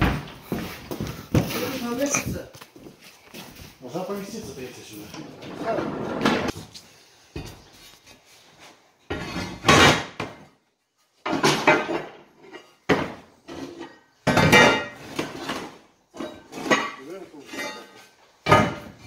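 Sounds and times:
steel plate scraping and clanking: 16.2 - 18.1.

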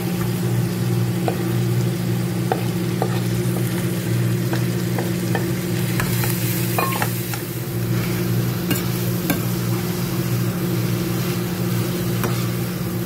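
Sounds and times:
food sizzling in a frying pan: 0.0 - 13.0
spatula scraping and tapping pan: 12.2 - 12.5.

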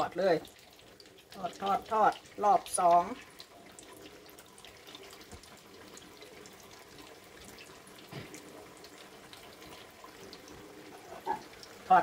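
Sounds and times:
oil sizzling and crackling: 0.0 - 12.0.

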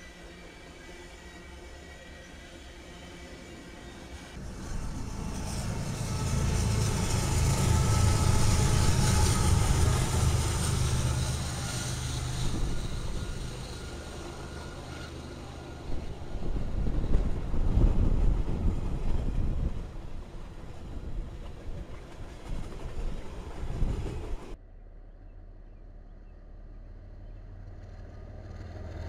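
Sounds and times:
diesel locomotive engine droning: 0.0 - 29.0
train rumble: 4.1 - 24.6.

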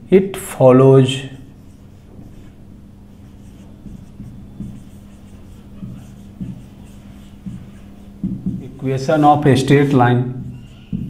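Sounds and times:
low steady hum: 0.0 - 11.0
marker scratching on whiteboard: 1.4 - 11.0
soft low thuds: 2.0 - 8.9.

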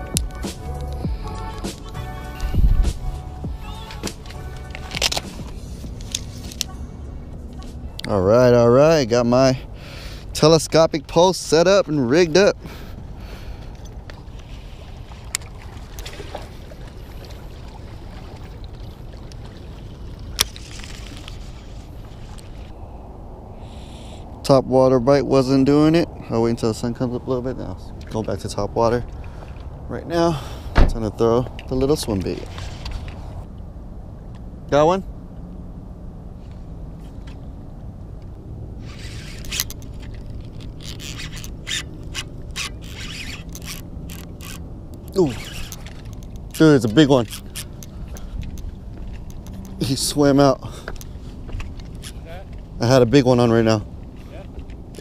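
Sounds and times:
steady low rumble: 0.0 - 39.0
fishing reel clicks: 38.8 - 48.2.

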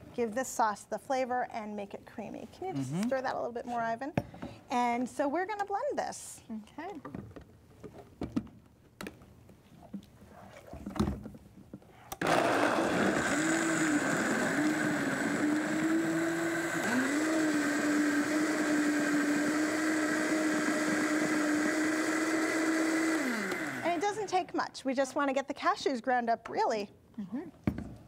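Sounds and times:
blender running: 12.2 - 24.3.

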